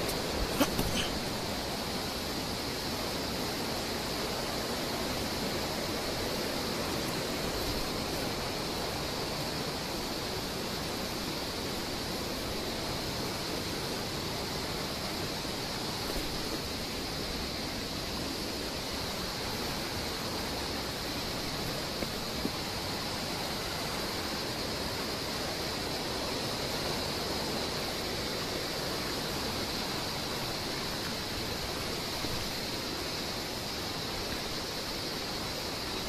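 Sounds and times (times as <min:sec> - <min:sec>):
rushing waterfall water: 0:00.0 - 0:36.0.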